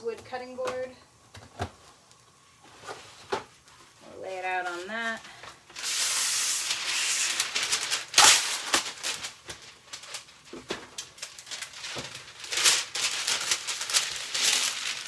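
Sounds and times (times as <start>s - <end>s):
paper rustling and crinkling: 2.6s - 15.0s
parchment paper tearing: 5.8s - 10.3s, 11.2s - 15.0s.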